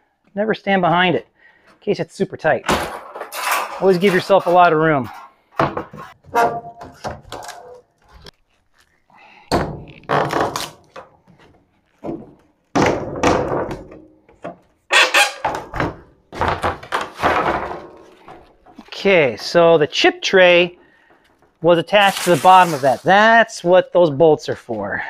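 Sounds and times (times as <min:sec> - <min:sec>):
thunks and clattering knocks: 0:02.6 - 0:04.4, 0:05.1 - 0:07.8, 0:09.5 - 0:19.6.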